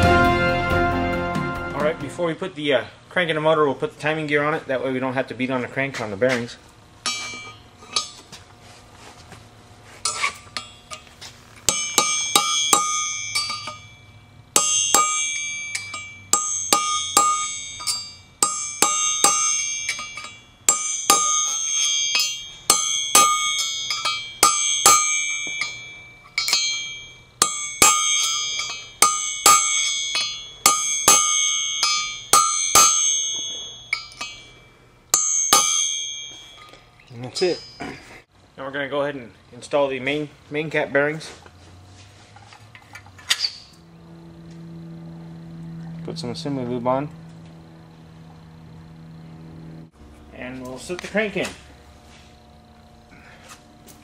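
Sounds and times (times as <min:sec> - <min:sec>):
hammer striking ringing steel: 0:07.0 - 0:08.4, 0:10.0 - 0:38.1.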